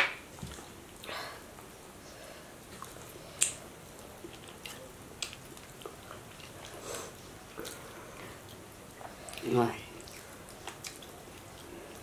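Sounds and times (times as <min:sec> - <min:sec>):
person chewing: 0:02.7 - 0:12.0.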